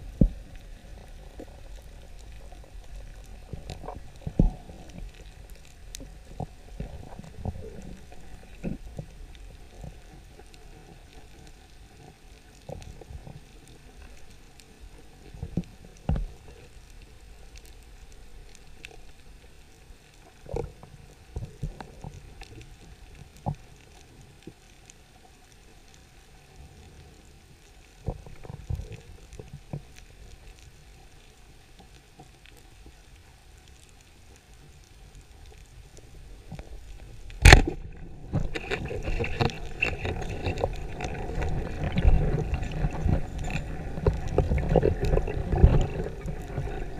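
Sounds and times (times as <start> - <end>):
water rushing and gurgling: 0.0 - 24.1, 27.9 - 46.9
muffled underwater rumble: 0.0 - 46.9
sharp loud click: 37.4 - 37.8.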